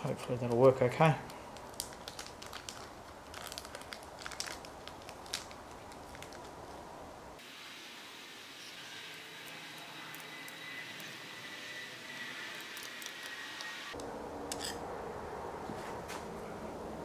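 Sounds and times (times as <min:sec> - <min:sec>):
plastic bag crinkling: 0:01.2 - 0:06.8.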